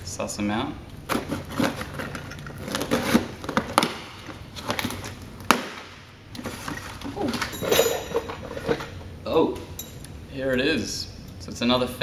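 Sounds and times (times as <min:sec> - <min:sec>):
cardboard tearing and rustling: 0:01.1 - 0:04.0.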